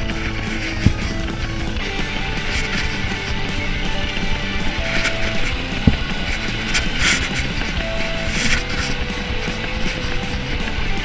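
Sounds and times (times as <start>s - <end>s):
background music with held notes: 0.0s - 11.0s
short thump: 4.8s - 7.7s.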